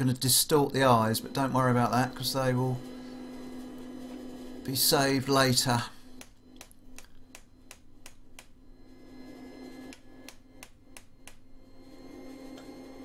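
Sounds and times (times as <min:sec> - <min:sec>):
hammer tapping punch into hot steel: 0:06.2 - 0:08.6, 0:09.9 - 0:11.5.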